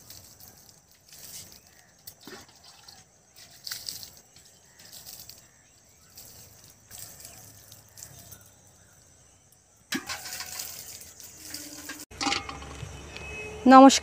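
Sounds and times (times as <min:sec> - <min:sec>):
water sloshing: 0:00.0 - 0:08.8, 0:09.9 - 0:13.0
water splashing onto soil: 0:00.0 - 0:09.0, 0:09.8 - 0:12.2
metal cup clinking on pot: 0:11.6 - 0:12.8.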